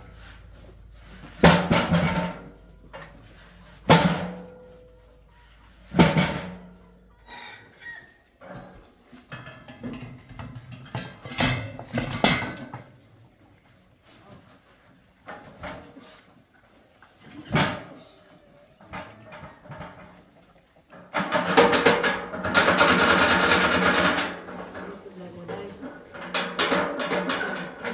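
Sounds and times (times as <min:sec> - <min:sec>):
metal rattling and scraping: 0:00.0 - 0:07.0, 0:08.4 - 0:13.3, 0:18.8 - 0:27.9
hollow metal bangs: 0:01.4 - 0:02.8, 0:03.8 - 0:04.8, 0:21.1 - 0:24.8, 0:26.1 - 0:27.9.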